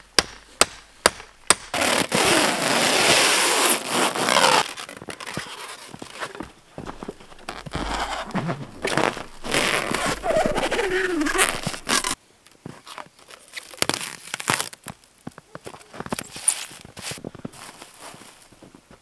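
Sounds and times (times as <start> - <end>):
stretch film crackling rustle: 1.8 - 12.2, 12.8 - 15.0
crunches and clicks: 4.7 - 12.2.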